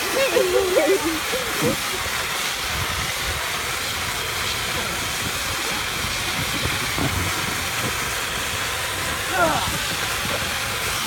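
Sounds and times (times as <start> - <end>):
sprinkler spraying water: 0.0 - 11.0.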